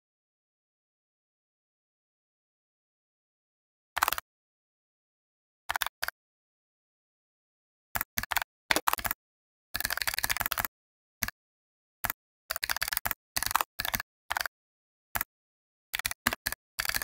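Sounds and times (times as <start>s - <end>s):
computer keyboard typing: 4.0s - 4.2s, 8.0s - 9.2s, 9.8s - 11.4s, 12.0s - 14.5s, 15.9s - 17.0s.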